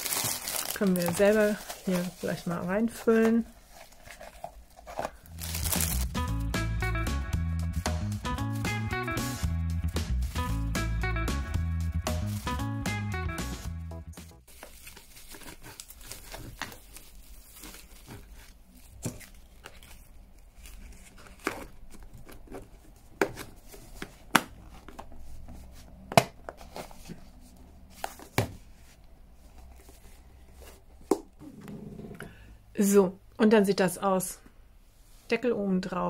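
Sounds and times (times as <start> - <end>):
plastic bags crinkling: 0.0 - 6.2, 14.5 - 22.5.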